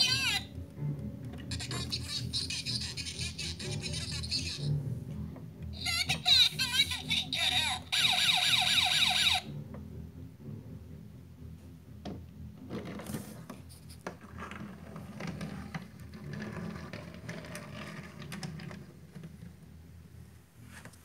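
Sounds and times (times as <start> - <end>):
toy vehicles rolling on floor: 0.0 - 0.5, 1.3 - 4.7, 5.8 - 9.5, 12.6 - 21.0.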